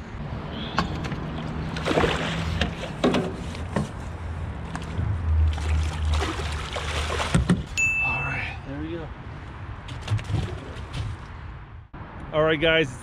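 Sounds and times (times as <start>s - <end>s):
fish splashing at the surface: 1.7s - 3.0s, 5.5s - 7.5s.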